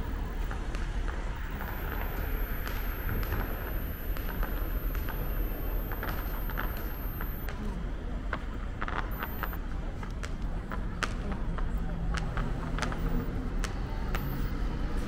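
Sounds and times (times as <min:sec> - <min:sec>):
steady low rumble: 0:00.0 - 0:08.0, 0:08.7 - 0:12.2.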